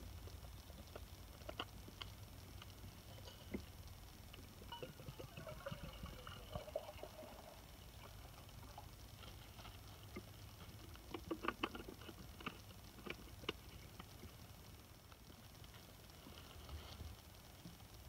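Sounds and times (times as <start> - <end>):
water pouring into metal cup: 4.7 - 8.7.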